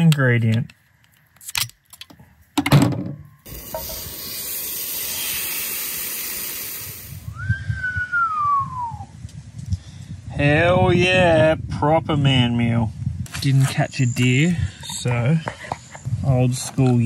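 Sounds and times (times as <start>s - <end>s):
whistle-like tone: 7.2s - 9.1s.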